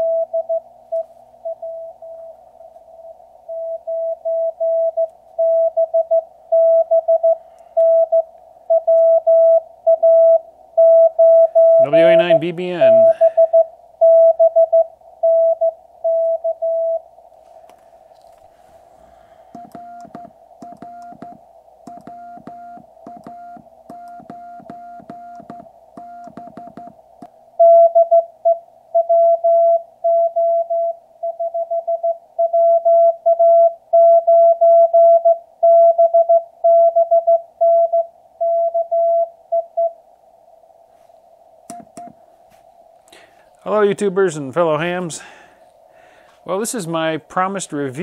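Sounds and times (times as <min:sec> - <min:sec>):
morse code tone: 0:00.0 - 0:02.3, 0:03.5 - 0:17.0, 0:19.6 - 0:27.0, 0:27.6 - 0:40.0
radio band noise hiss: 0:11.8 - 0:13.3.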